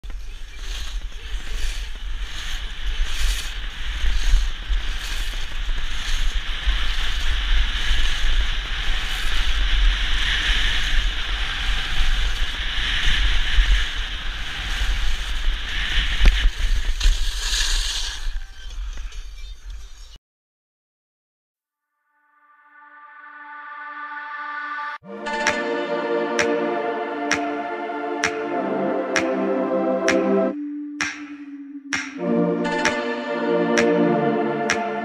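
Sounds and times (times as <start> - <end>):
skis scraping on snow: 0.0 - 20.1
wind buffeting microphone: 0.2 - 17.4.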